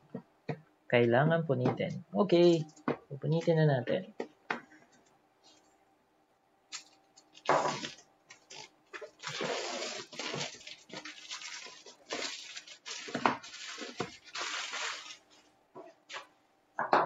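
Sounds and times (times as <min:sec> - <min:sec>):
plastic wrap tearing and crinkling: 0:06.7 - 0:15.4.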